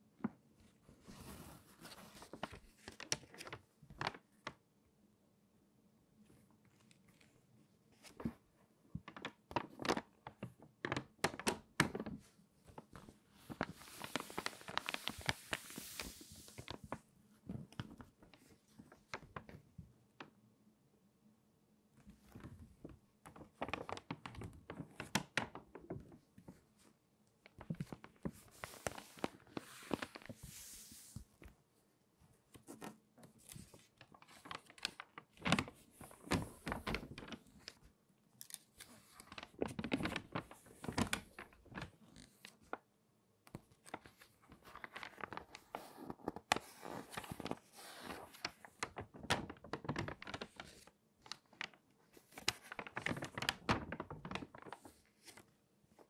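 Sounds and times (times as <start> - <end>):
magazine pages crinkling: 1.7 - 4.6, 9.0 - 17.0, 23.3 - 26.0, 27.4 - 31.3, 32.8 - 42.8, 43.5 - 55.5.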